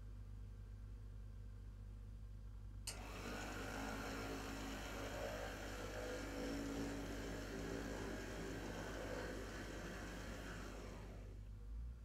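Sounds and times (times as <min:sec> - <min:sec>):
model train motor hum and whine: 0:02.9 - 0:11.4.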